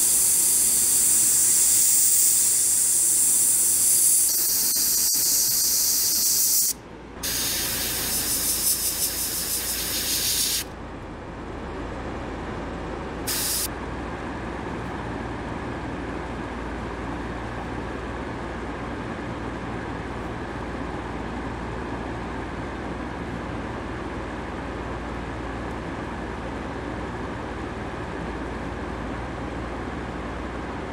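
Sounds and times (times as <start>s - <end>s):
airbrush spraying paint: 0.0s - 10.7s, 13.3s - 13.7s.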